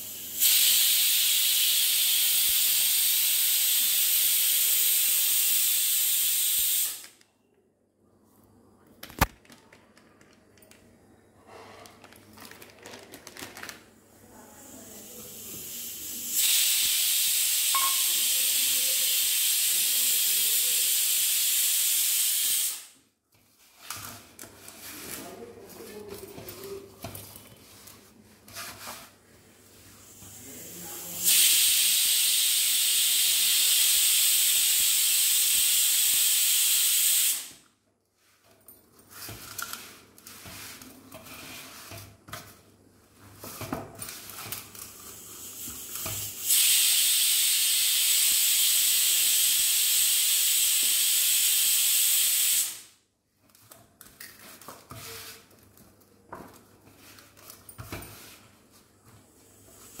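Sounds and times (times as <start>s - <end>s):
loud steady hiss: 0.0s - 7.2s, 14.6s - 23.0s, 30.0s - 37.6s, 45.1s - 53.0s.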